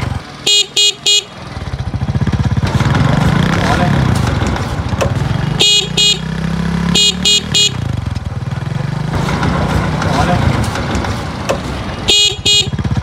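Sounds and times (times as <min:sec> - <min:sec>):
motorcycle engine running: 0:00.0 - 0:13.0
horn beeps: 0:00.4 - 0:01.4, 0:05.6 - 0:06.3, 0:06.9 - 0:07.9, 0:12.1 - 0:12.8.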